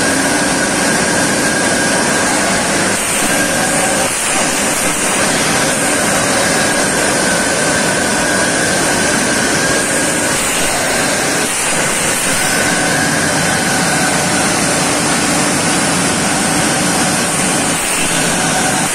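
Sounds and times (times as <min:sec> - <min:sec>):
high whine: 0:00.0 - 0:18.9
steady mechanical mill noise: 0:00.0 - 0:18.9.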